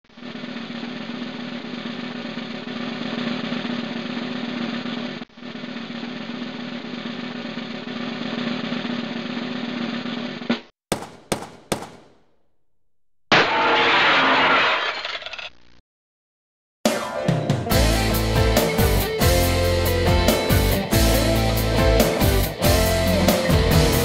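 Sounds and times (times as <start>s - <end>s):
snare drum roll: 10.3s - 12.2s.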